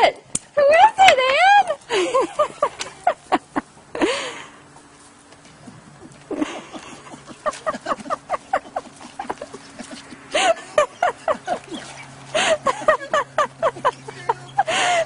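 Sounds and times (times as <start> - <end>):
dog whining and yelping: 10.9 - 12.2.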